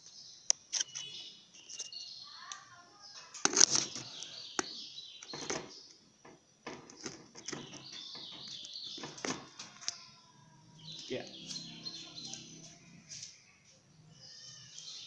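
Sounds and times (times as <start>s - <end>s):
sharp knocks: 5.3s - 9.6s
high-pitched chirping: 7.5s - 15.0s.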